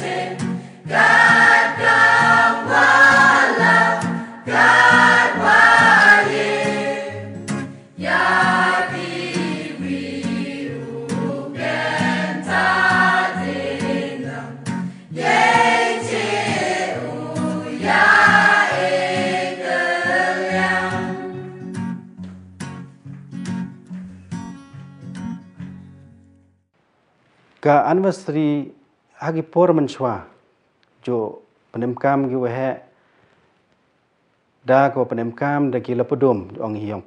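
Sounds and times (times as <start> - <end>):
choir singing a hymn: 0.0 - 21.7.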